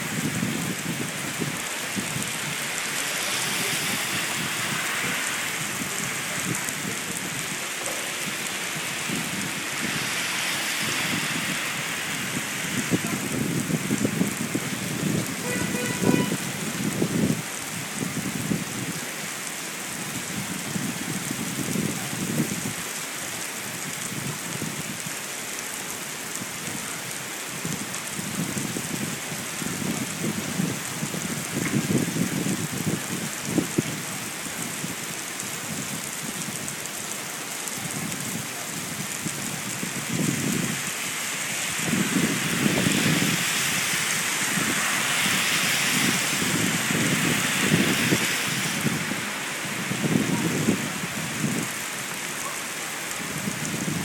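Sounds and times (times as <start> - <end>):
gusty wind rumbles: 0.0 - 19.0, 37.8 - 51.8, 53.2 - 54.0
heavy rain on wet street: 0.0 - 54.0.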